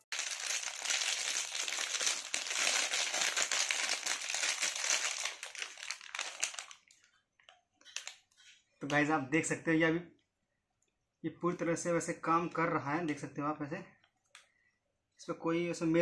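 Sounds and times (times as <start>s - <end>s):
plastic wrap crinkling: 0.0s - 7.2s, 7.8s - 8.5s.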